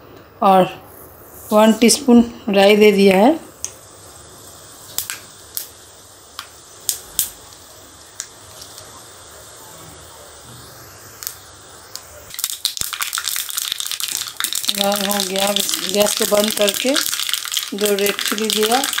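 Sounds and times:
mustard seeds popping in oil: 4.9 - 8.9, 11.2 - 19.0.

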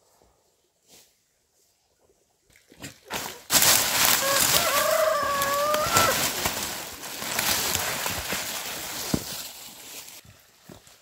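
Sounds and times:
rooster crowing: 4.2 - 6.2.

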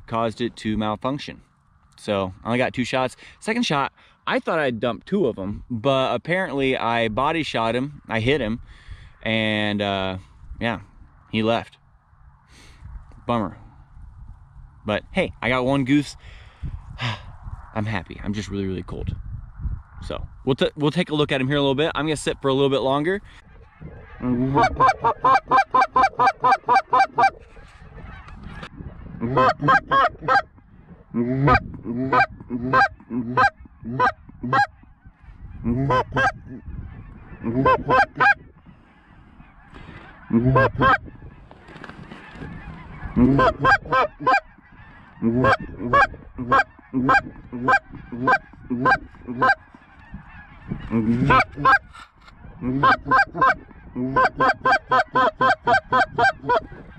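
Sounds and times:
goose honking: 23.4 - 30.6, 31.2 - 35.0, 35.6 - 56.9.

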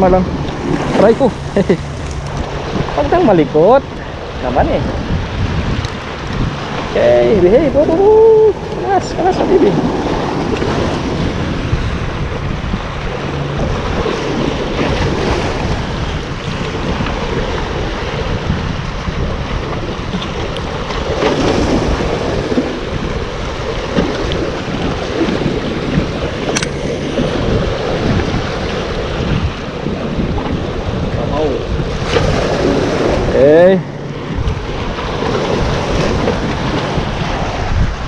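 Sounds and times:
sea waves washing against boulders: 0.0 - 38.0
wind buffeting microphone: 0.0 - 38.0
sharp click: 26.5 - 27.0.

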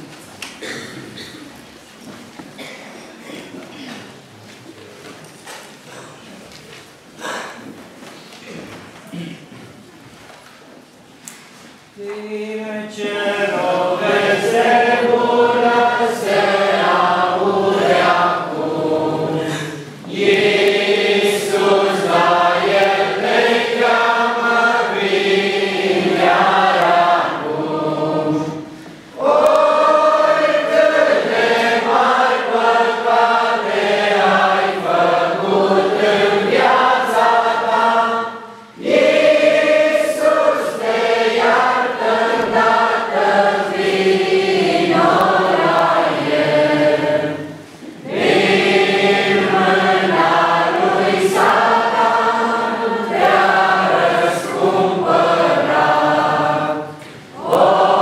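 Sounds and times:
congregation singing a hymn: 11.9 - 58.0.

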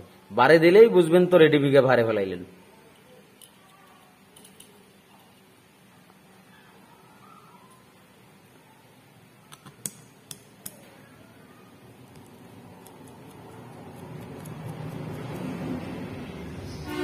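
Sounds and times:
light metallic clicks and clinks: 3.3 - 5.5.

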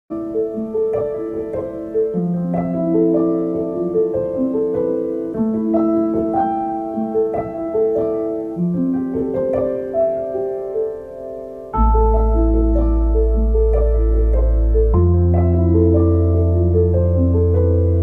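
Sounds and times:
slow piano melody: 0.1 - 18.0.

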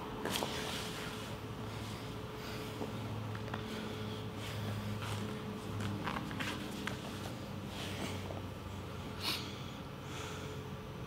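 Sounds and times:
low steady hum: 0.0 - 11.0
bodies shifting against each other: 0.2 - 8.4
people breathing hard: 9.1 - 10.8.

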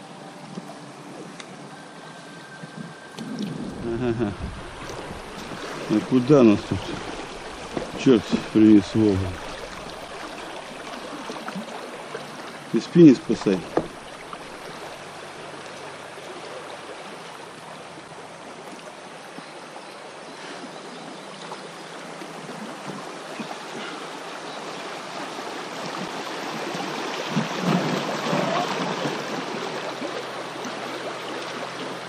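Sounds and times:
water rushing over rocks: 2.7 - 19.2, 22.0 - 32.0
dull knocks: 13.6 - 14.0.

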